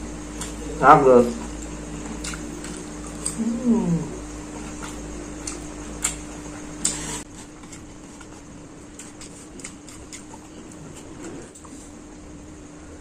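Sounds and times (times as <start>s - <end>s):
low steady hum: 0.0s - 13.0s
person chewing noodles: 1.4s - 11.8s.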